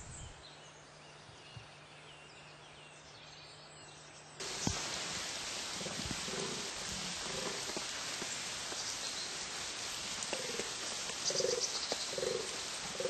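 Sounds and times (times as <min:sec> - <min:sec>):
steady hiss: 0:04.4 - 0:13.0
wild boar grunting: 0:05.7 - 0:07.8, 0:11.3 - 0:13.0.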